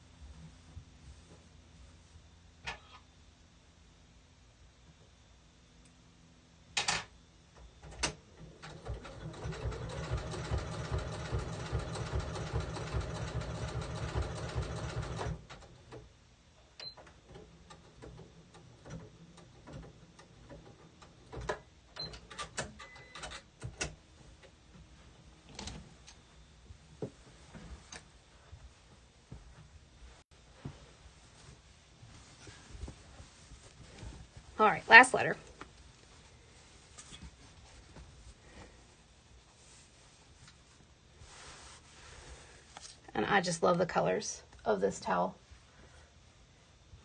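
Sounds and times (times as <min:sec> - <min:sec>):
sewing machine stitching: 0:07.9 - 0:15.8.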